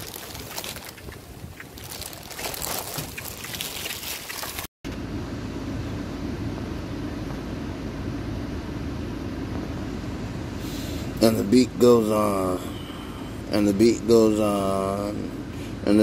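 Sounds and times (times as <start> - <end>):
rustling: 0.0 - 4.7
low hum inside a car: 4.9 - 16.0.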